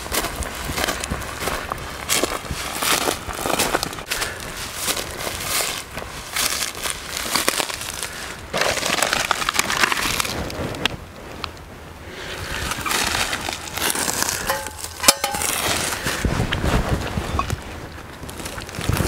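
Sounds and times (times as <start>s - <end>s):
footsteps crunching through dry grass: 0.0s - 9.6s, 12.4s - 17.7s
gear rustling: 12.4s - 16.8s.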